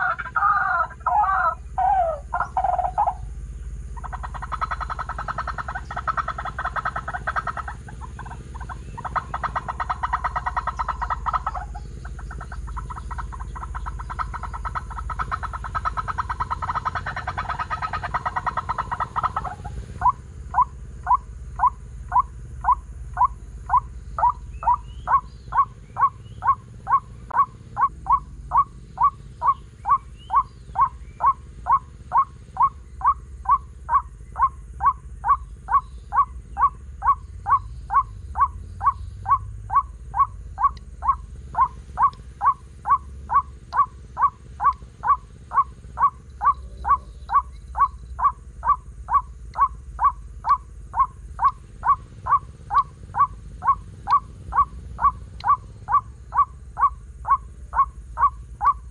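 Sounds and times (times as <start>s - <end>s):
waterhen call through speaker: 0.0s - 3.2s.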